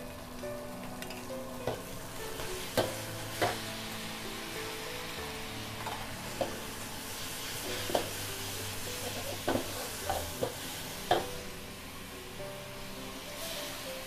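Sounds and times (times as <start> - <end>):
gas burner: 0.0 - 14.0
noodles sizzling in a hot wok: 0.0 - 14.0
metal utensils scraping a wok: 5.6 - 11.3.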